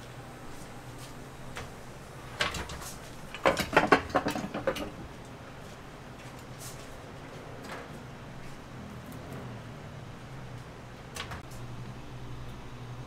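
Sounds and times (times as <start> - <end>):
steady low hum: 0.0 - 13.0
metal waffle irons clacking: 2.4 - 5.0.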